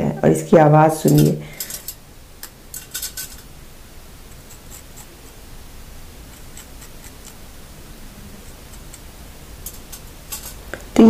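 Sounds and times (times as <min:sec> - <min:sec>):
knife crunching fried crust: 0:06.2 - 0:07.4, 0:08.5 - 0:10.6.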